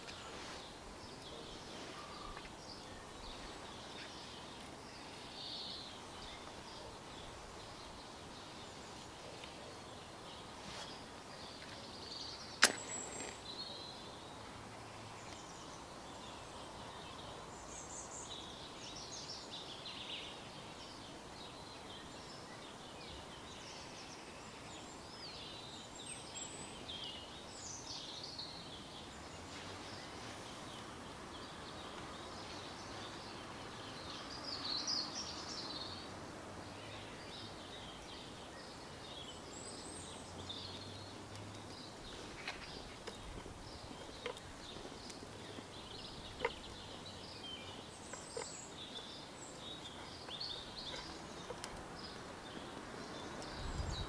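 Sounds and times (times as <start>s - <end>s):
small birds chirping: 0.0s - 54.0s
sharp click: 12.6s - 13.4s.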